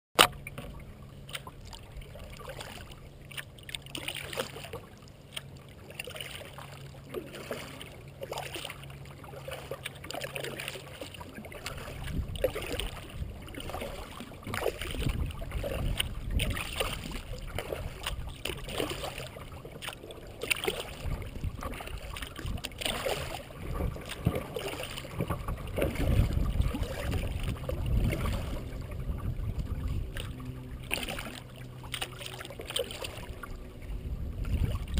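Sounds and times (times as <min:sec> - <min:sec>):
paddle splashes: 0:00.2 - 0:34.9
water lapping against hull: 0:00.2 - 0:34.9
low rumble: 0:11.6 - 0:34.9.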